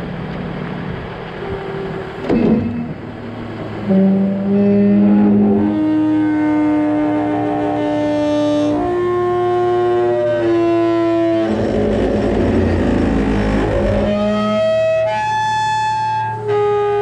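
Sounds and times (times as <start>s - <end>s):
metal squealing on metal: 11.1s - 15.1s
rough scraping: 11.4s - 14.5s.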